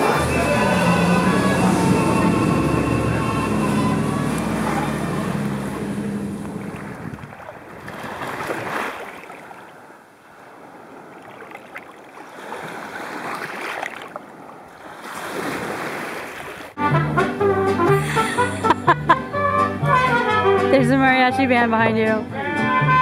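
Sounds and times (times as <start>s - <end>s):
song playing: 0.0s - 6.7s, 16.8s - 23.0s
small waves washing onto sand: 0.0s - 16.8s.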